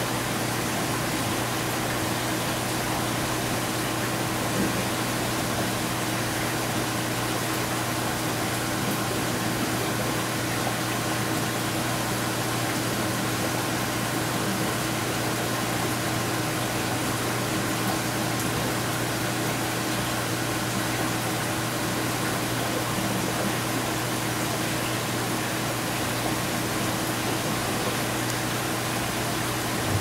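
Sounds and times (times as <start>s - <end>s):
low machine hum: 26.0s - 30.0s.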